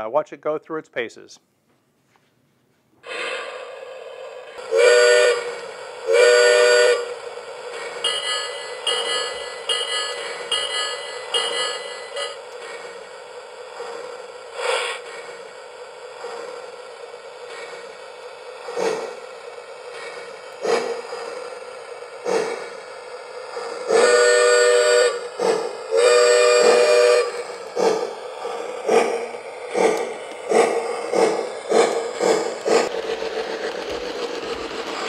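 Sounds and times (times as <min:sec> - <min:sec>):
steam locomotive chuffs: 0:03.0 - 0:35.0
steam whistle blasts: 0:04.6 - 0:07.2, 0:08.0 - 0:12.4, 0:23.9 - 0:25.3, 0:25.9 - 0:27.5.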